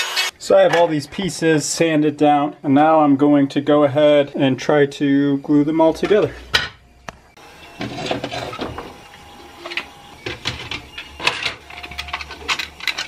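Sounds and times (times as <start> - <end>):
plastic pieces clicking and knocking: 10.7 - 13.0.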